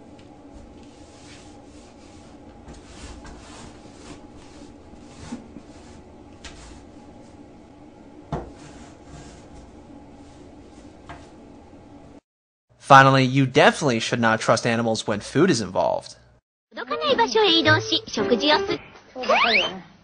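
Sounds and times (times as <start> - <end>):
steady background hum: 0.0 - 12.2
rug scraping on tiled floor: 0.5 - 7.3, 8.4 - 11.3.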